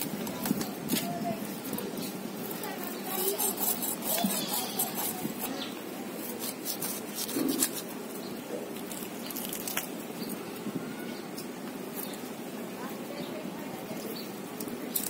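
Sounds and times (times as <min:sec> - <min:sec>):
metal blade scraping fish skin: 0:02.9 - 0:07.9.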